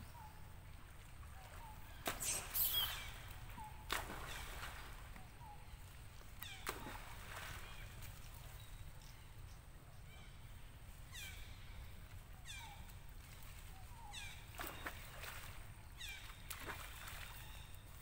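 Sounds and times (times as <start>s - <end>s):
short high animal calls: 2.2s - 3.2s.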